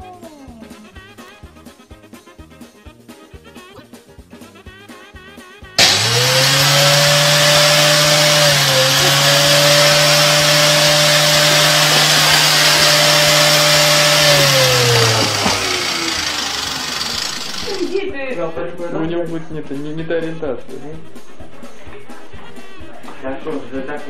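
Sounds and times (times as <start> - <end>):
vacuum cleaner running: 5.8 - 18.0.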